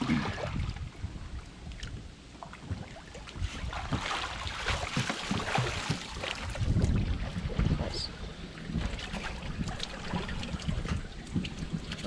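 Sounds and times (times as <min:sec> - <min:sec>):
water sloshing and splashing: 0:00.0 - 0:12.0
wind rumble on microphone: 0:00.0 - 0:12.0
water streaming off body: 0:02.8 - 0:12.0.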